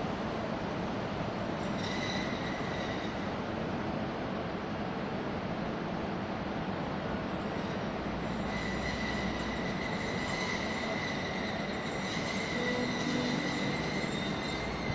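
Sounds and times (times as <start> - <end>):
train rolling noise: 0.0 - 14.9
train wheels squealing: 1.6 - 3.8, 7.4 - 14.9.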